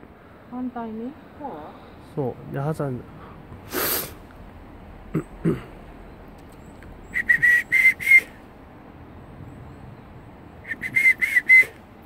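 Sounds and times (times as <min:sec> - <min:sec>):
person whistling short notes: 0:07.1 - 0:08.4, 0:10.6 - 0:11.8.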